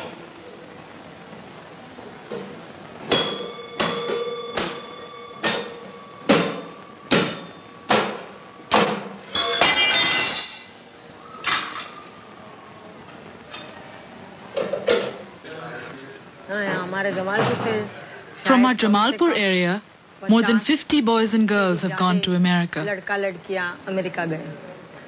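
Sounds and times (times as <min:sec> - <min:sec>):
ringing metallic knocks on brass: 0:03.1 - 0:10.6.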